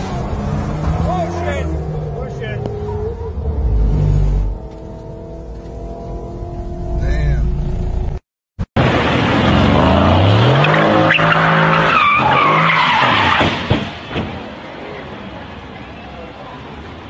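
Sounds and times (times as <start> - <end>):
car engine revving: 0.0 - 8.2
car crashing thuds: 13.2 - 14.5.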